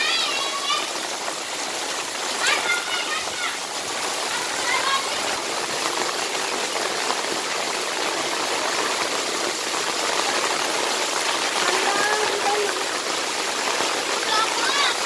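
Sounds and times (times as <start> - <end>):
faint children's voices: 0.0 - 5.8, 13.7 - 15.0
heavy rain falling: 0.0 - 15.0.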